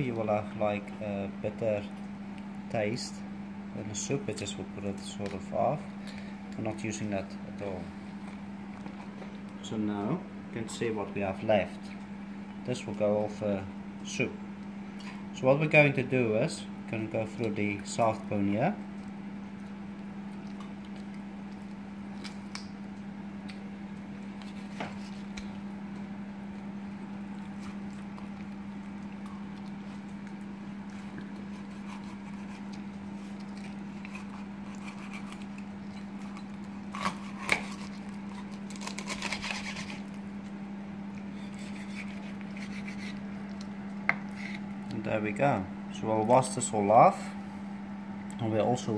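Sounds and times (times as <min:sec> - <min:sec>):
steady low hum: 0:00.0 - 0:48.9
knife cutting through bone: 0:24.4 - 0:25.5, 0:31.0 - 0:40.2, 0:41.3 - 0:44.7
scratchy crunching: 0:27.2 - 0:40.2.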